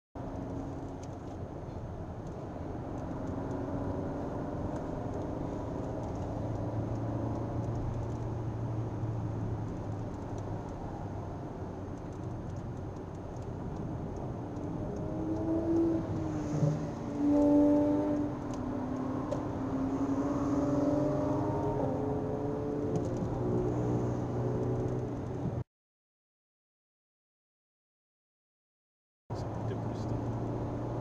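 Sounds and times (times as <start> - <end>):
car engine: 0.2 - 25.6, 29.3 - 31.0
tyre and road noise: 0.2 - 25.6, 29.3 - 31.0.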